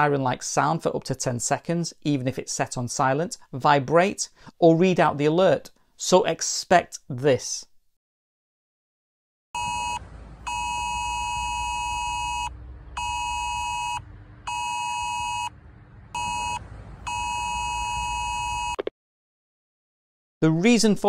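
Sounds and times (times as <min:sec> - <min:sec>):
low rumble: 0:09.6 - 0:18.8
pulsing two-tone alert siren: 0:09.6 - 0:18.8.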